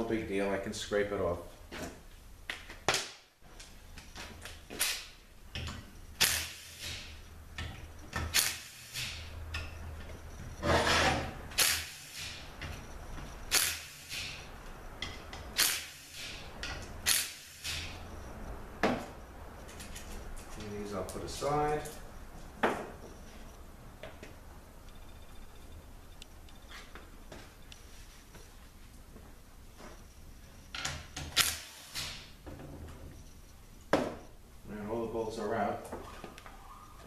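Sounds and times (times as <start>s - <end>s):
metal parts scraping and sliding: 10.2s - 14.5s.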